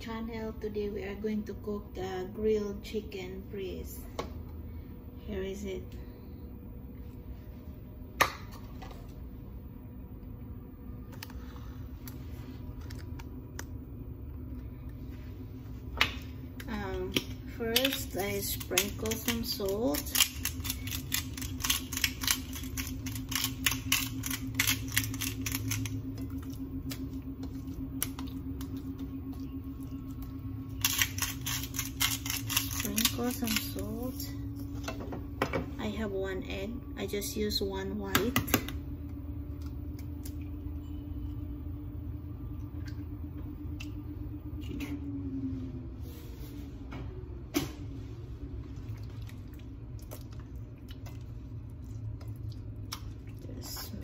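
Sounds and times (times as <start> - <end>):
steady low hum: 0.0 - 54.0
egg cracking clicks: 17.1 - 27.1, 30.8 - 33.8.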